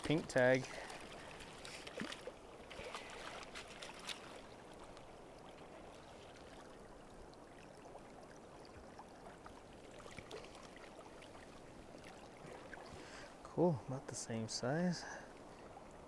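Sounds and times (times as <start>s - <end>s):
fish splashing in a net: 0.8s - 4.6s.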